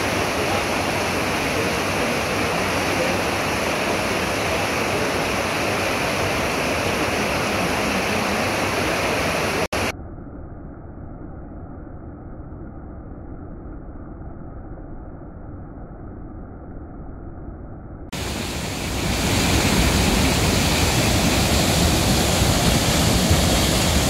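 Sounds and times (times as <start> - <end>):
rushing churning water: 0.0 - 9.8, 18.2 - 24.0.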